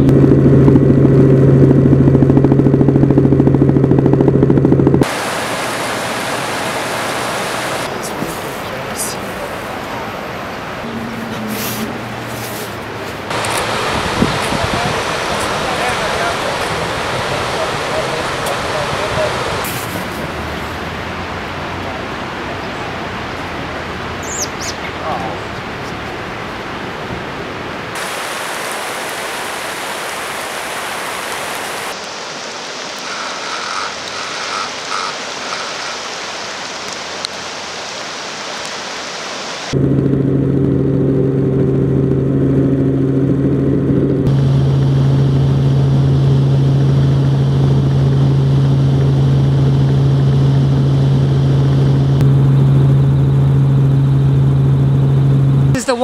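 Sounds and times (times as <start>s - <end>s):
aircraft engine drone: 0.0s - 56.0s
floodwater rushing: 5.0s - 39.8s.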